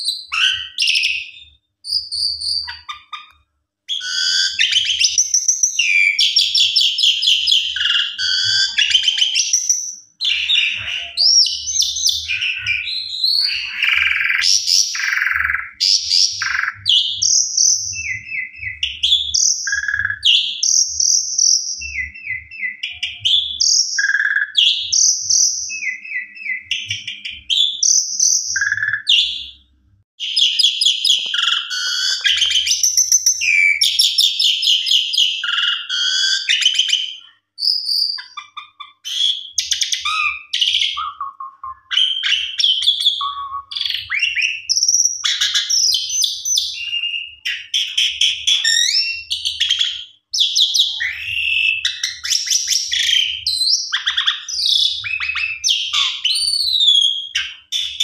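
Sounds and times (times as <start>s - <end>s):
starling whistling: 0.0s - 3.3s, 3.9s - 29.5s, 30.2s - 58.0s
starling chattering song: 2.4s - 20.3s, 31.0s - 36.8s.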